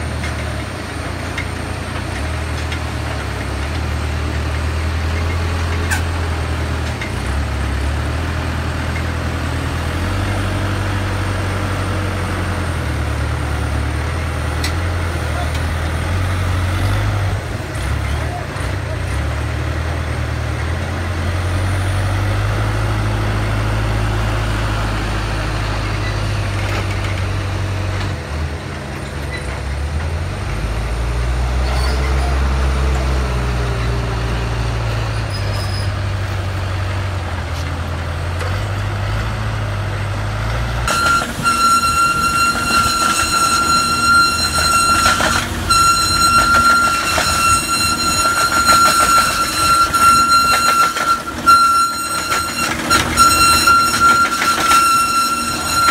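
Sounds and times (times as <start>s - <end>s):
diesel engines running: 0.0s - 55.9s
conveyor metallic clatter: 40.5s - 55.9s.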